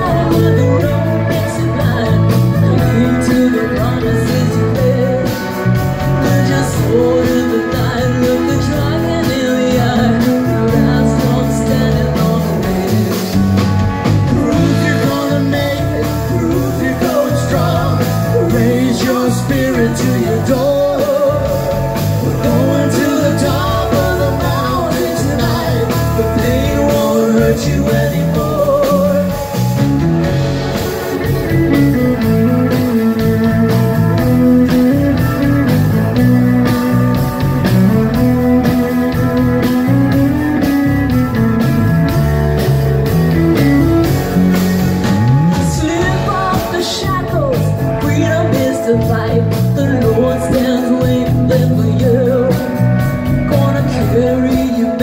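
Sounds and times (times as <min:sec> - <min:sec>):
acoustic guitar: 0:00.0 - 0:55.0
drums: 0:00.0 - 0:55.0
fiddle playing lead: 0:28.1 - 0:49.4.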